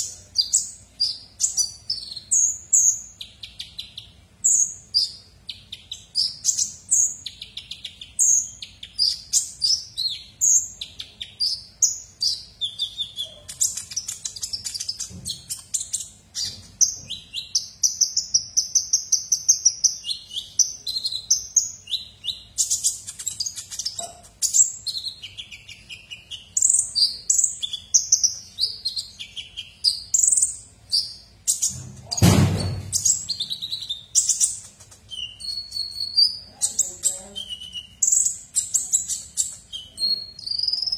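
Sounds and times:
sunbird twittering and trilling: 0:00.0 - 0:40.9
low thud: 0:31.9 - 0:33.0.

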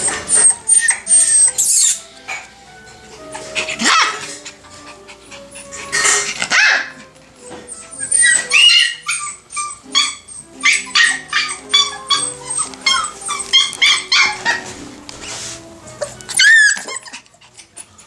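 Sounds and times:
background music: 0:00.0 - 0:18.0
puppies yipping and whining: 0:00.0 - 0:18.0.

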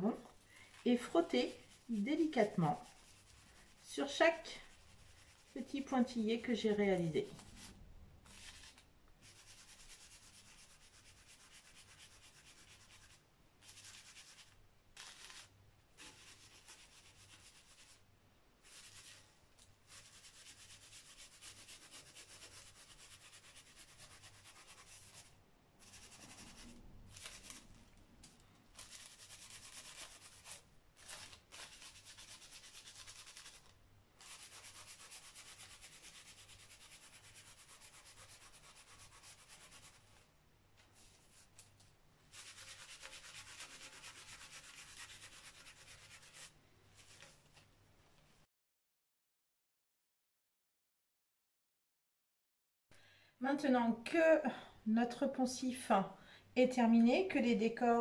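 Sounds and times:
cloth pouch rubbing on paper: 0:00.0 - 0:27.8, 0:28.8 - 0:41.7, 0:42.3 - 0:47.7.

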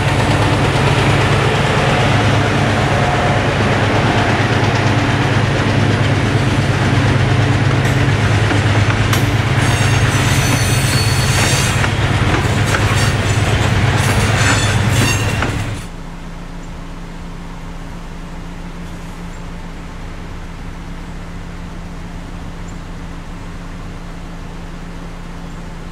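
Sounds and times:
heavy rumble of train wheels on rail: 0:00.0 - 0:25.9
high wheel squeal: 0:09.1 - 0:15.9.

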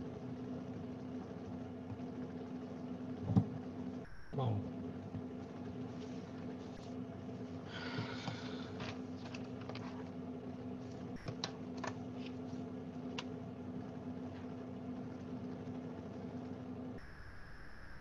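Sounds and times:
faint high whine: 0:00.0 - 0:10.1, 0:10.7 - 0:18.0.

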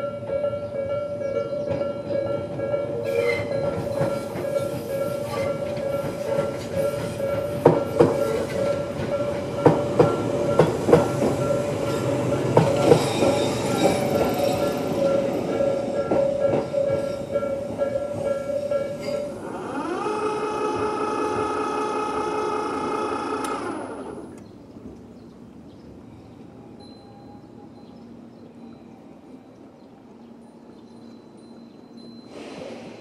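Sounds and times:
level crossing warning bell: 0:00.0 - 0:24.2, 0:26.6 - 0:29.8, 0:30.4 - 0:32.5
train wheels clacking over rail joints: 0:01.6 - 0:25.1.

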